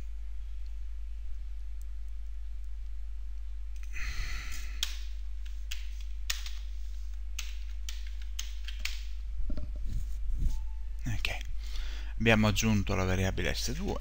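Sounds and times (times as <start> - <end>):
low electrical hum: 0.0 - 14.0
keyboard keystrokes: 7.4 - 9.0.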